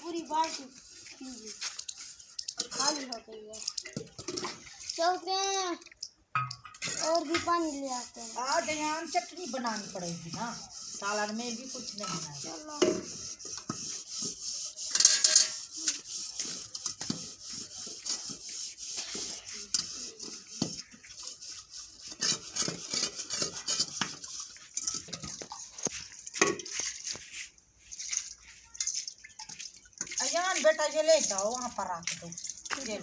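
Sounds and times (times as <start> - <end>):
scrubbing inside metal pots: 0.0 - 33.0
pots clinking and knocking: 6.0 - 7.6, 22.3 - 26.8.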